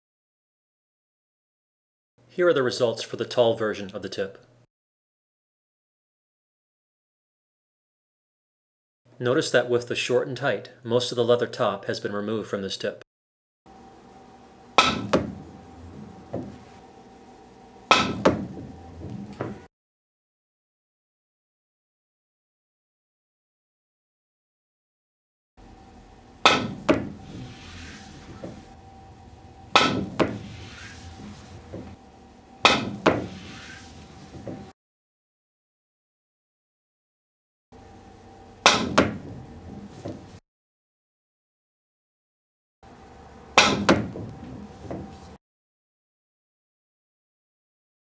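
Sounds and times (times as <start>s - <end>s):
ball knocking into cushion: 14.8s - 15.4s, 16.3s - 16.6s, 17.9s - 19.6s, 26.5s - 27.4s, 29.8s - 30.6s, 32.7s - 33.5s, 38.7s - 39.4s
cue striking ball: 14.8s - 16.7s, 17.9s - 19.7s, 26.4s - 29.0s, 29.6s - 32.0s, 32.6s - 34.7s, 38.6s - 40.3s, 43.6s - 45.3s
ball rolling hiss: 26.8s - 28.8s, 29.4s - 32.0s, 32.9s - 34.7s.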